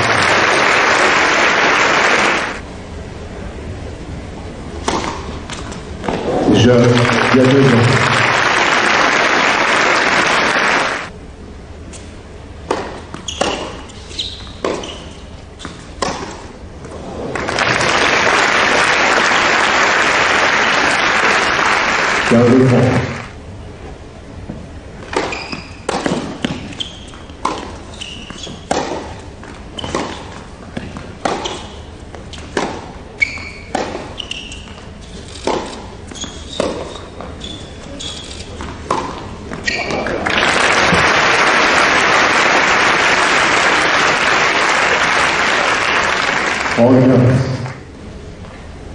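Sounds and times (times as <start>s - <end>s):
crowd applauding: 0.0s - 2.6s, 6.5s - 11.1s, 17.3s - 23.4s, 40.0s - 47.8s
tennis ball bouncing on court: 4.8s - 6.3s, 12.6s - 13.9s, 14.5s - 16.4s, 24.5s - 37.4s, 38.6s - 39.8s
tennis ball struck by rackets: 4.8s - 6.3s, 12.6s - 13.8s, 14.6s - 15.0s, 15.6s - 16.5s, 25.0s - 26.7s, 27.4s - 27.8s, 28.6s - 29.2s, 29.8s - 31.7s, 32.4s - 32.9s, 33.6s - 34.1s, 35.4s - 35.9s, 36.6s - 37.0s, 38.6s - 39.6s.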